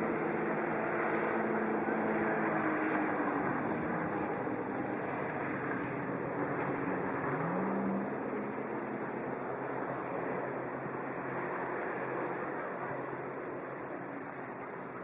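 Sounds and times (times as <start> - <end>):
jet ski engine running: 0.0 - 15.0.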